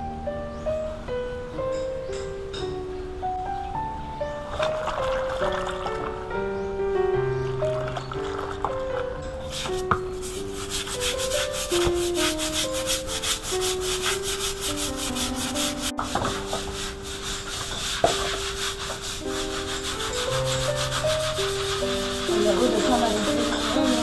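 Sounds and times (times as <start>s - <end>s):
background music: 0.0s - 24.0s
brushes scrubbing wet concrete: 9.4s - 24.0s.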